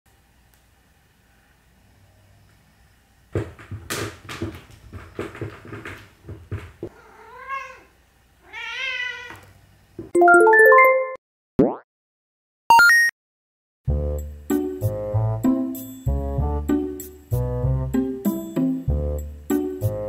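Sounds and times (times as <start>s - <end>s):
knocks and scuffles on wooden floor: 3.4s - 6.9s
cat meowing: 6.9s - 9.5s.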